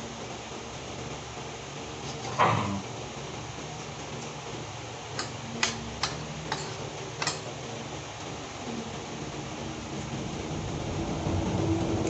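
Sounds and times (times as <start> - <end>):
tableware tapping: 5.2 - 7.5.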